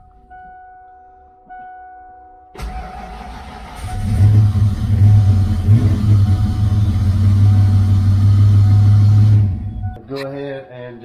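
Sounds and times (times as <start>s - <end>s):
car engine cranking and idling: 2.6s - 10.1s.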